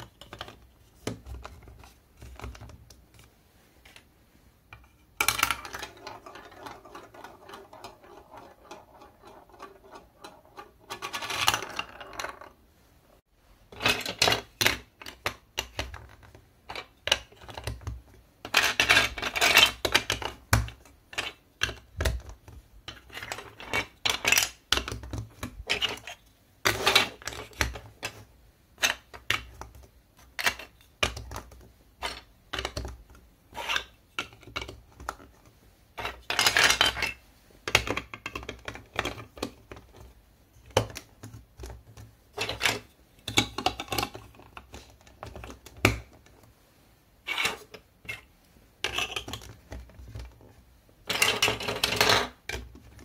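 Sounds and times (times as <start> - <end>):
plastic bricks clicking and snapping: 13.7 - 28.2, 28.8 - 46.4.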